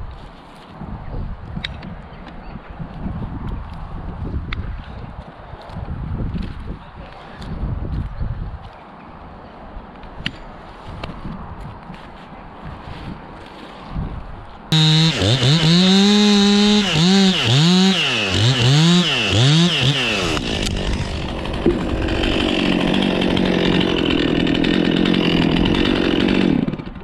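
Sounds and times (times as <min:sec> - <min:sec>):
chainsaw revving and cutting: 0:14.7 - 0:27.0.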